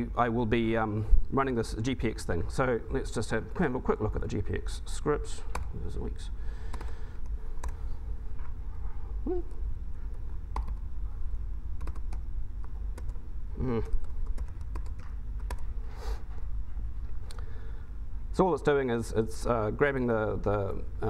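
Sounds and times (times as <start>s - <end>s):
steady low hum: 0.0s - 21.0s
keyboard typing: 7.6s - 7.9s, 10.1s - 10.9s, 11.8s - 15.7s.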